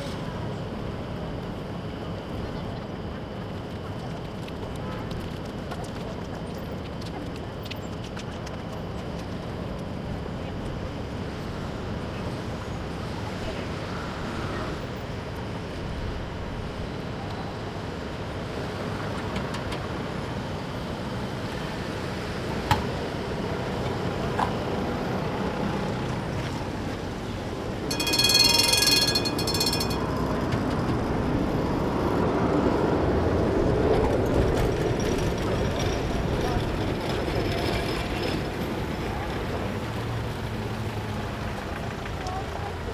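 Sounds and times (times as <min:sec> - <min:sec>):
tram rumbling: 0:00.0 - 0:42.9
shrill ringing signal: 0:27.9 - 0:30.5.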